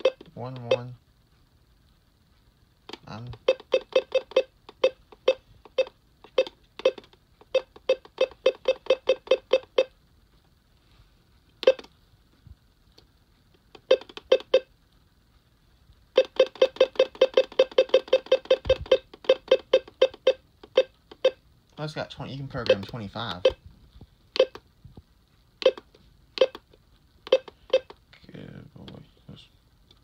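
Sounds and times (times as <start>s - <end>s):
radio keypress beeps: 2.9s - 9.9s, 11.6s - 11.9s, 16.2s - 21.4s, 22.5s - 23.6s, 24.4s - 24.6s, 25.6s - 26.6s, 27.2s - 27.9s.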